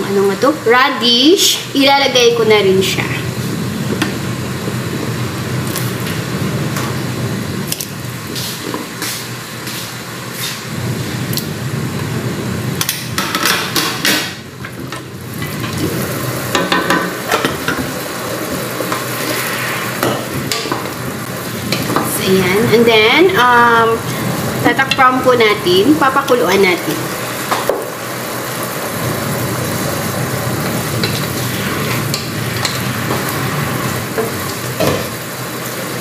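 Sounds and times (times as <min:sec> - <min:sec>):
steady hiss: 0:15.2 - 0:36.0.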